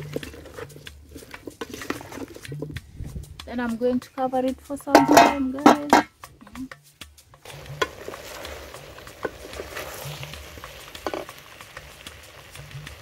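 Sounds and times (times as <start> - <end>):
pot sizzling over fire: 0.0 - 13.0
wooden spoon knocking pot: 4.9 - 6.2.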